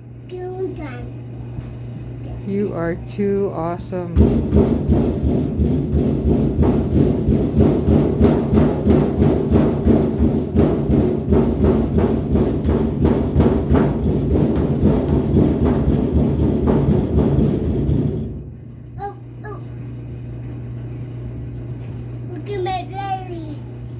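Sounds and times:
fists drumming on sheet metal: 4.0 - 18.6.

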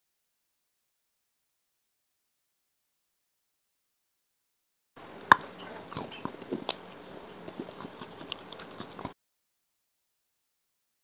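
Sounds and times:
biting and chewing: 5.2 - 9.2.

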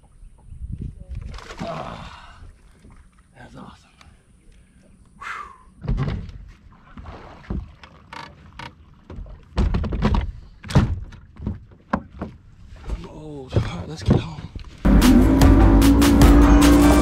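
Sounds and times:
thumps and knocks on boat deck: 5.8 - 6.4, 9.0 - 14.5.

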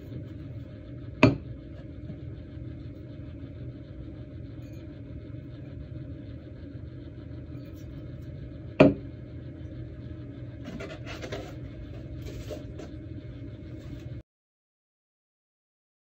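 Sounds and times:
steady low hum: 0.0 - 14.2
metal pitcher knocking on wooden table: 8.8 - 9.0
cardboard box scraping: 10.6 - 12.9.

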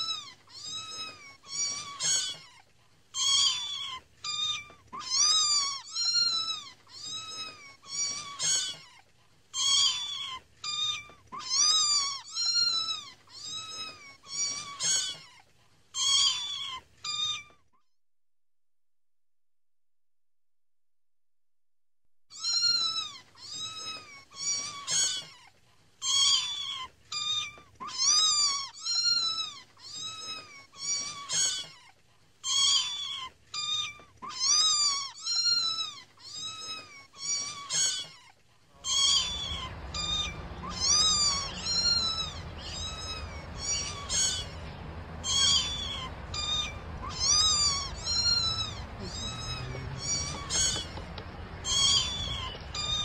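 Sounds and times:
kittens mewing: 3.2 - 8.9, 38.8 - 53.0
low background noise: 22.9 - 53.0.

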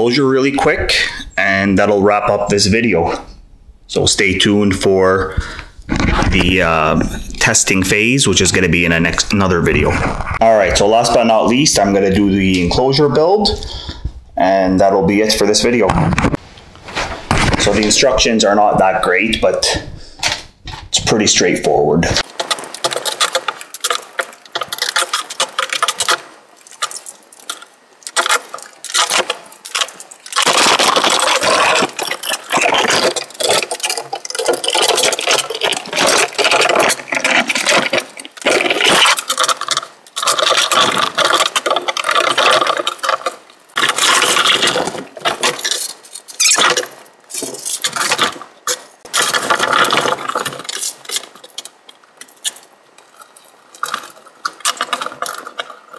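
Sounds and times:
metal tubes clinking and scraping: 22.2 - 55.9.

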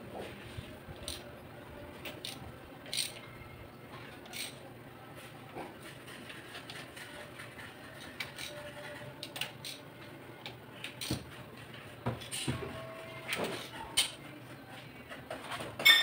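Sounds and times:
socket wrench clicking: 2.0 - 3.2, 4.3 - 4.6.

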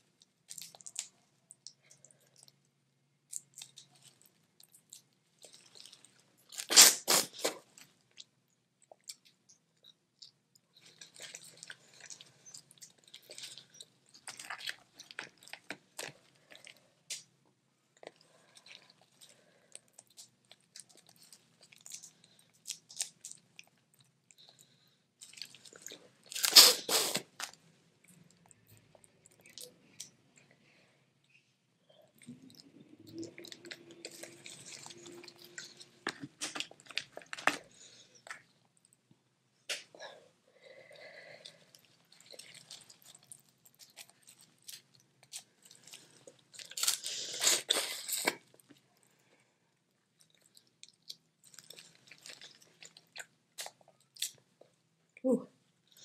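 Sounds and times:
chewing: 3.3 - 17.3, 32.1 - 39.0, 40.8 - 48.8, 50.1 - 54.8.

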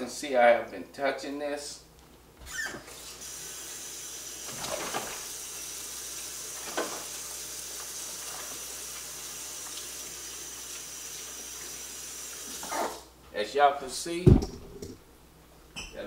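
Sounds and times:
tap running into a sink: 6.6 - 7.2.

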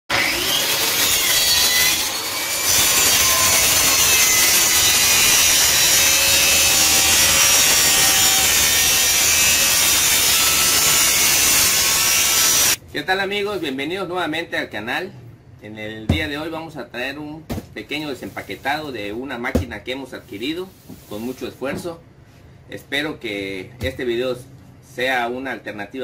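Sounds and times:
track saw cutting board: 0.1 - 12.8.

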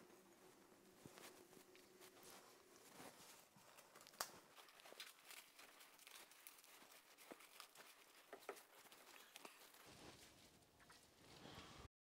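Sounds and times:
cling film crinkling: 1.2 - 11.2.

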